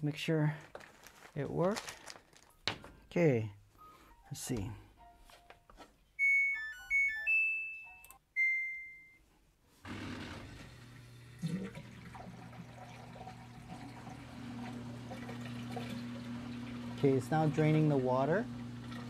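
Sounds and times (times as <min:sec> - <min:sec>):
long electronic beep: 0:06.2 - 0:09.2
washing machine power-on chime: 0:06.2 - 0:09.2, 0:10.0 - 0:19.0
drain pump humming: 0:09.9 - 0:19.0
water rushing through pump: 0:09.9 - 0:19.0.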